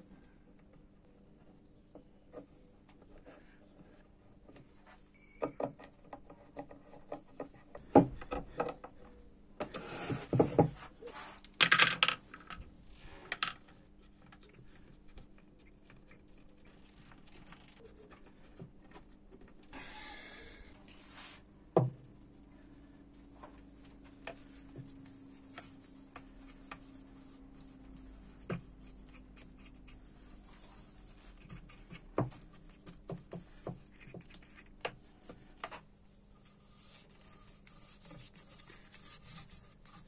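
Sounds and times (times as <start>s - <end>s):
wooden pieces knocking: 11.6s - 12.6s
rubbing and scraping: 24.3s - 40.0s.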